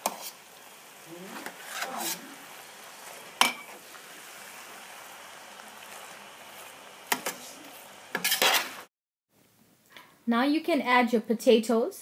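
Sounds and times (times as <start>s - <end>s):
spoon stirring rice in a pot: 0.0s - 0.4s
steady hiss: 0.0s - 8.9s.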